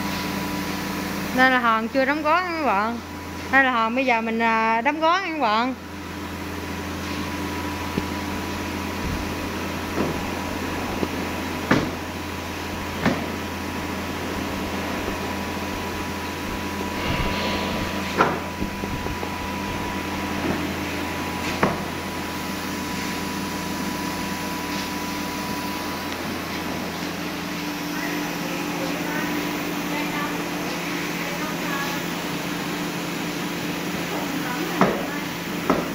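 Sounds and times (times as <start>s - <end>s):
machine hum: 4.4s - 30.6s.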